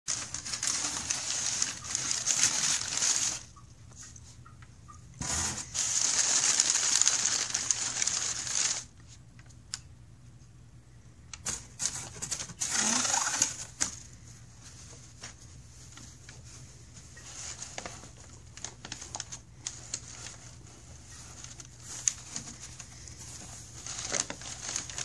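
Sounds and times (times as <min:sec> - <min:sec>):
packing paper rustling and crinkling: 0:00.1 - 0:03.6, 0:05.2 - 0:09.1, 0:11.4 - 0:25.0.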